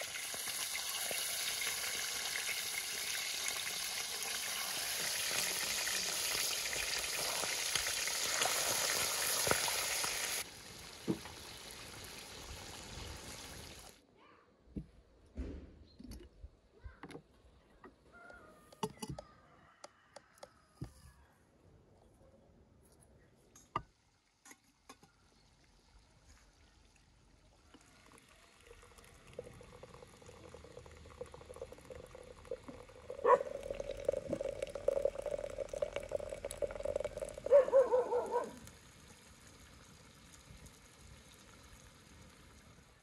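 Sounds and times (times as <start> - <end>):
water pouring into teapot: 0.0 - 13.9, 26.9 - 43.0.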